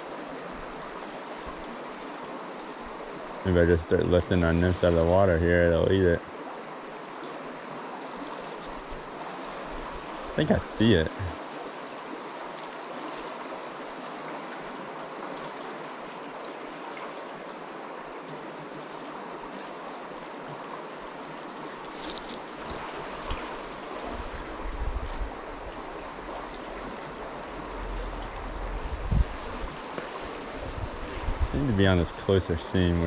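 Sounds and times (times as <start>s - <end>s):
shallow stream rushing: 0.0s - 33.0s
wind rumbling on microphone: 22.0s - 32.4s.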